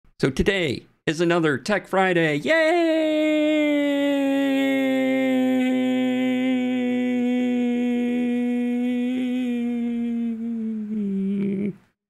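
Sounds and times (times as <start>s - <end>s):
man's long sung shout: 2.4s - 10.4s.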